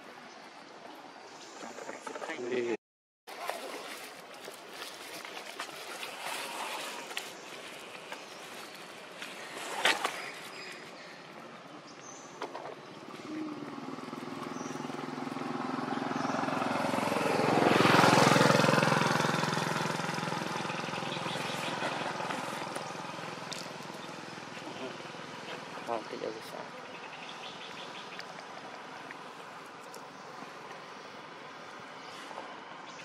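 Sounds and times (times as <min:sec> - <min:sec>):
vehicle engine passing by: 0:13.0 - 0:26.0.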